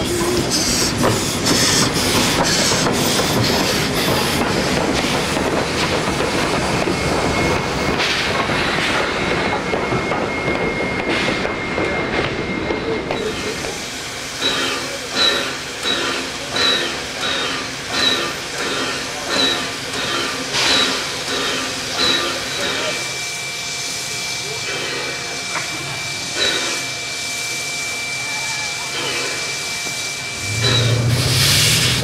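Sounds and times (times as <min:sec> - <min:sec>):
rhythmic steam hissing beats: 0:00.0 - 0:32.0
steam hissing: 0:00.0 - 0:32.0.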